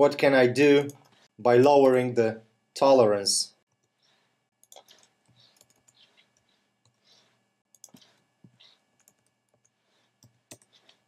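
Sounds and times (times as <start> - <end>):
keyboard and mouse clicks: 4.6 - 7.0, 7.7 - 11.0.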